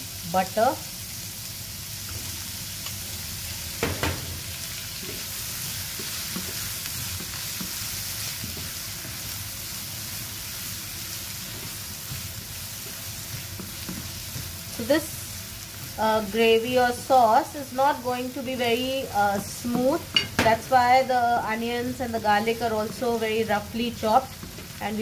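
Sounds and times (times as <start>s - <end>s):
onion and garlic sizzling in oil: 0.0s - 25.0s
turner stirring in pan: 2.0s - 25.0s
knock: 3.8s - 4.3s.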